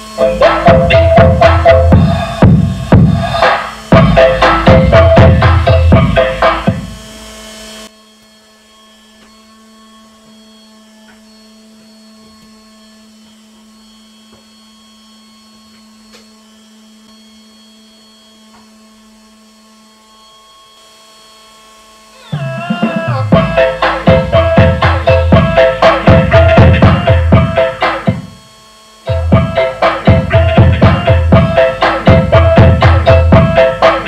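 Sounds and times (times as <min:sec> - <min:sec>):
music through amplifier: 0:00.0 - 0:07.1, 0:22.3 - 0:28.5, 0:29.1 - 0:34.0
higher tones: 0:00.0 - 0:07.4, 0:22.1 - 0:34.0.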